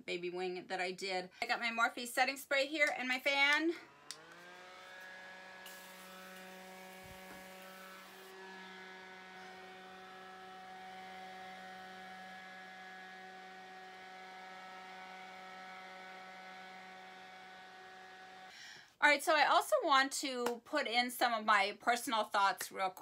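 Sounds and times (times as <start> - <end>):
handheld electric fan whirring: 2.8 - 18.6
spray hissing: 5.6 - 8.2.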